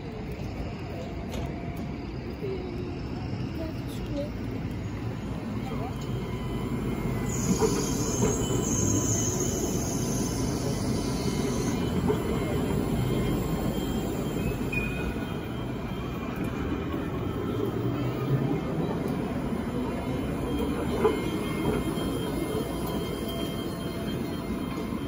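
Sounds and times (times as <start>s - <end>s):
tram wheels rumbling: 0.0s - 25.0s
high wheel squeal: 5.7s - 25.0s.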